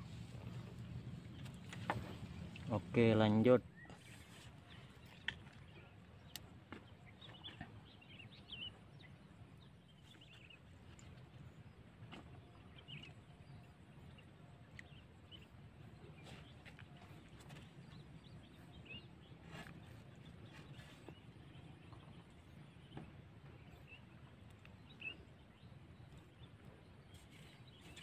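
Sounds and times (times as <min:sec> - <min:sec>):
steady low rumble: 0:00.0 - 0:03.1.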